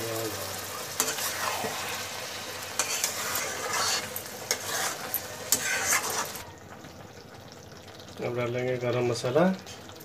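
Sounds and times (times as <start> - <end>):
food sizzling: 0.0 - 10.0
metal ladle scraping pan: 0.9 - 6.5.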